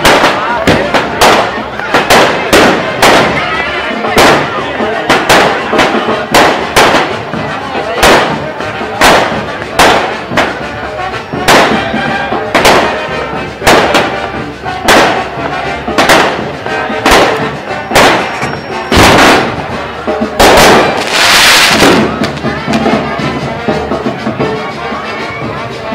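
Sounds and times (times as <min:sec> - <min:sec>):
firework crackling: 0:00.0 - 0:24.5
firework shells bursting: 0:04.0 - 0:07.4, 0:11.2 - 0:22.5.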